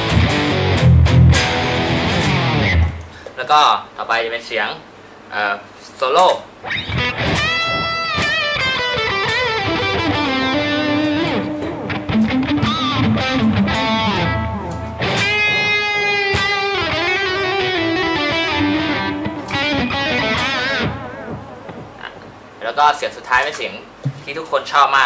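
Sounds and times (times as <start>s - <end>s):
electric guitar solo: 0.0s - 3.1s, 6.6s - 22.3s.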